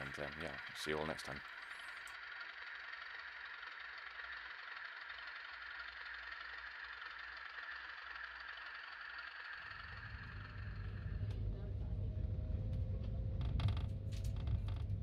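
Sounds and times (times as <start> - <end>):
model train motor whirring: 0.0 - 11.4
low hum: 0.0 - 15.0.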